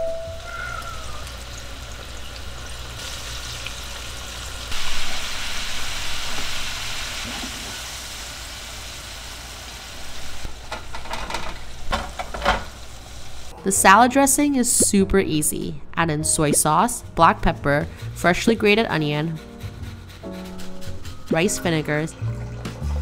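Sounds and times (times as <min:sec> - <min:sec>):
oil sizzling: 0:00.2 - 0:13.5.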